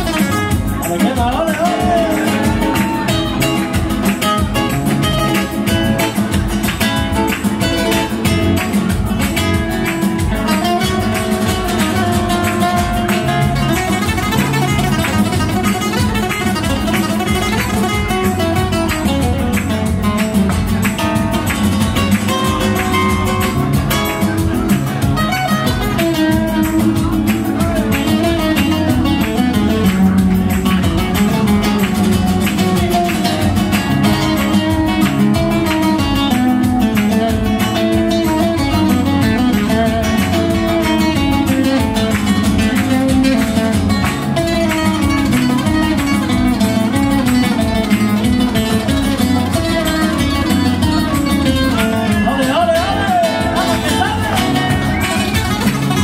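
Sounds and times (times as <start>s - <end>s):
acoustic guitars playing rumba: 0.0s - 56.0s.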